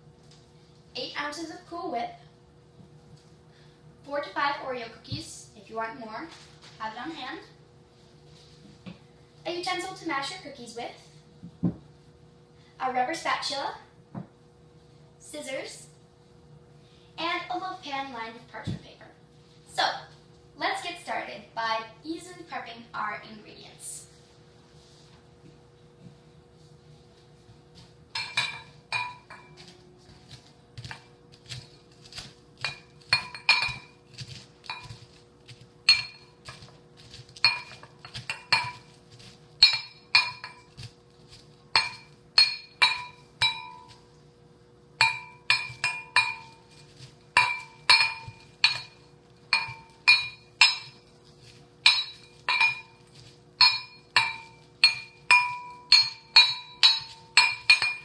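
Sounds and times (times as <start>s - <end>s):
utensil pounding cookies in bowl: 28.1s - 44.2s, 45.0s - 58.0s.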